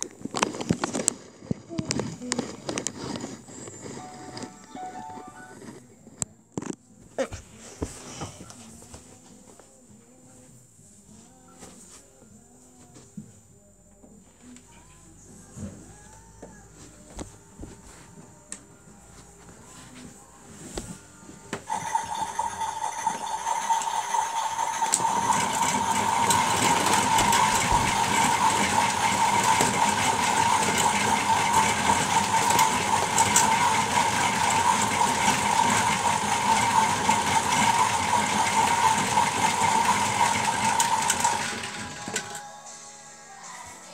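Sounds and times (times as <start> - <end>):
toy washing machine whirring: 0.0 - 5.8, 21.5 - 42.5
fast rattling clatter: 21.7 - 42.4.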